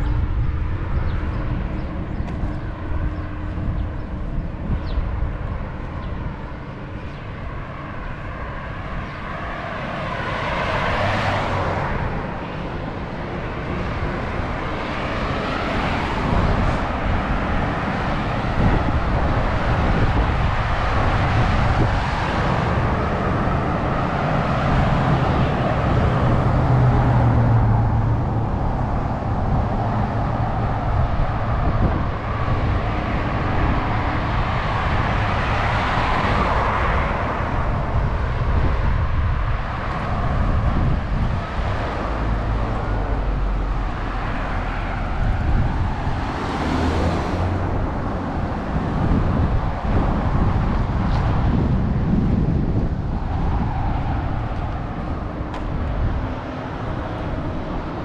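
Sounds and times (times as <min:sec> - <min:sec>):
vehicles passing by: 0:00.0 - 0:58.0.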